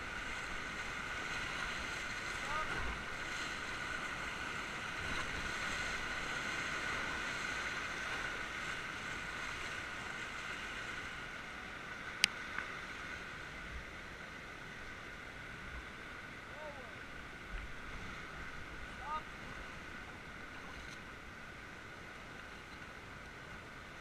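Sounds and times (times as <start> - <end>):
river rapids rushing: 0.0 - 12.2.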